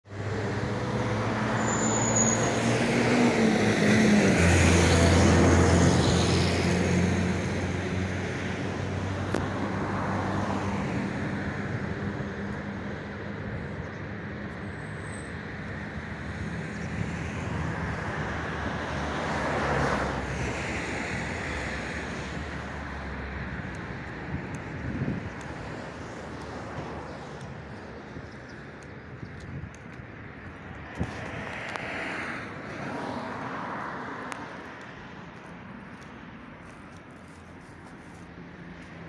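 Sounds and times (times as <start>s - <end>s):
vehicle engine humming: 10.9s - 39.0s.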